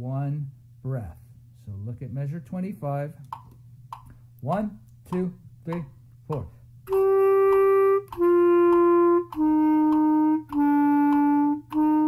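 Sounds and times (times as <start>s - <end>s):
clarinet playing long notes: 6.9s - 12.0s.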